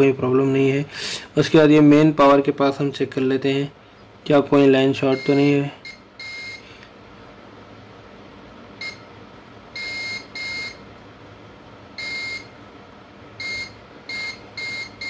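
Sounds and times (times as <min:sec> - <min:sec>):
multimeter continuity beeps: 0:05.0 - 0:06.6, 0:08.8 - 0:09.1, 0:09.7 - 0:10.8, 0:12.0 - 0:12.6, 0:13.4 - 0:15.0.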